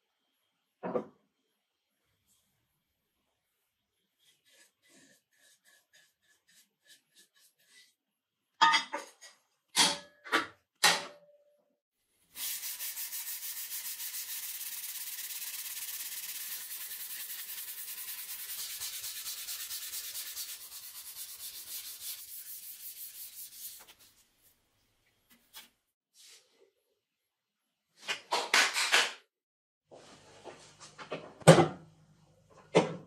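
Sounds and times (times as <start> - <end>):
sandpaper sanding steel: 12.3 - 24.1.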